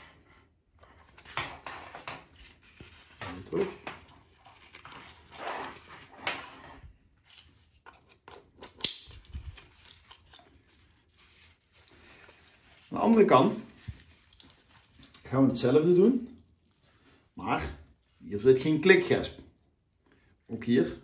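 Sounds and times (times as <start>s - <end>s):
straps rustling through buckles: 0.8s - 19.1s.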